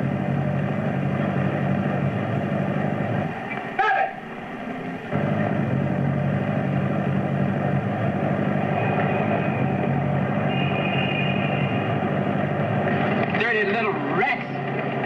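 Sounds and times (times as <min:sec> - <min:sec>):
truck engines running: 0:00.0 - 0:15.0
high steady tone: 0:00.8 - 0:12.8.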